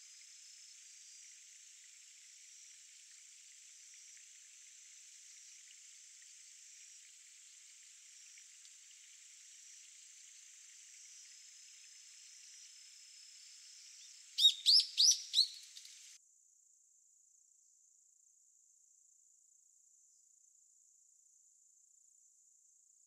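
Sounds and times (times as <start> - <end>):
bird calling sharp notes: 14.4 - 15.9.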